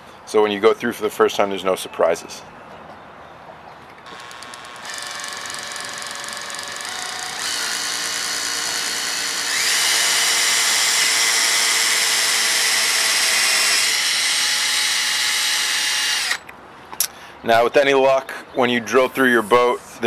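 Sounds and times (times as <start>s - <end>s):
cordless drill motor whine: 4.1s - 16.4s.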